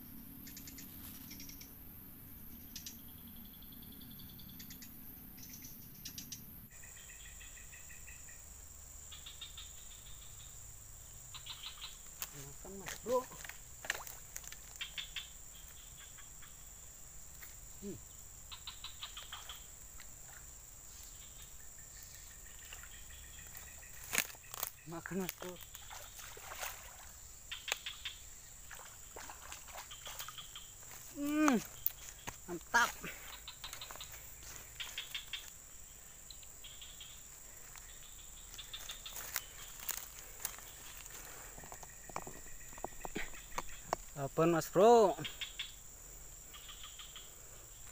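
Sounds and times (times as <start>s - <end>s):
high-pitched insect drone: 0.1s - 47.9s
faint ticks: 2.6s - 3.0s.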